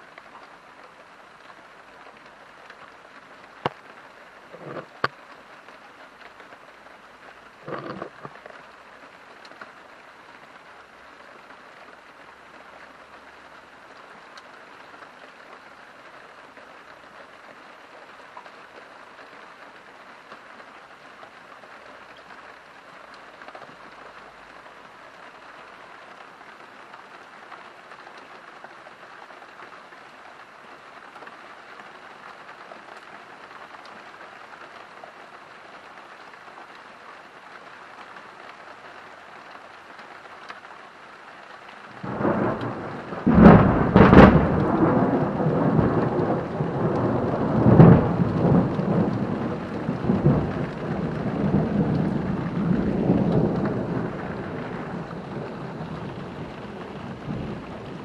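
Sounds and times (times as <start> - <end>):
steady rain: 0.0 - 58.0
thunder clap and rolling peals: 42.0 - 58.0.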